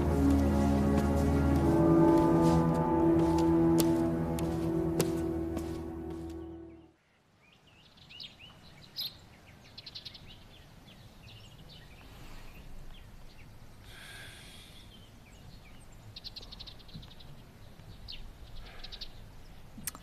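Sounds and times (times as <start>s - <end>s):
small birds chirping: 6.4s - 20.0s.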